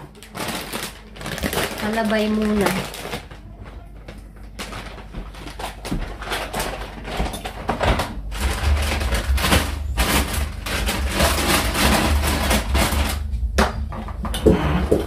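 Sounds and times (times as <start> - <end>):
packaging rustling: 0.0 - 13.3.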